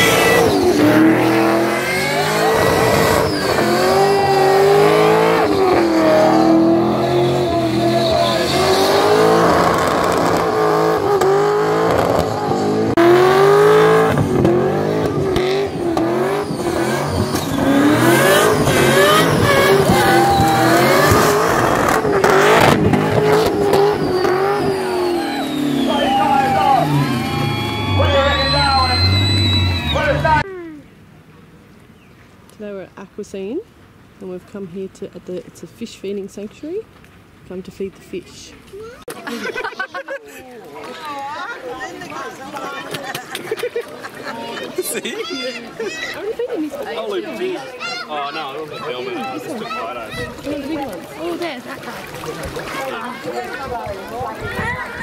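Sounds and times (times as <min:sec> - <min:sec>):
racing engines revving: 0:00.0 - 0:30.5.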